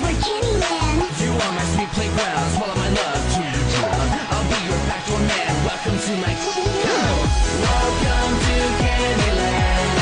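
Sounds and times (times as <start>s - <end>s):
electronic pop music: 0.0s - 10.0s.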